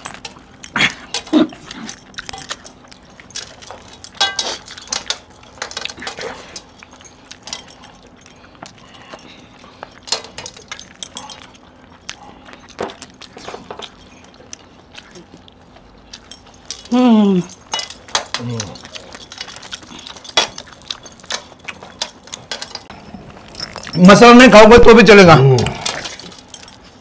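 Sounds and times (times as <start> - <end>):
metal bracelets clinking: 0.0 - 8.3, 9.0 - 11.7, 16.2 - 24.5, 25.6 - 27.0
faint steady hum: 0.0 - 27.0
wet chewing and smacking: 0.0 - 27.0.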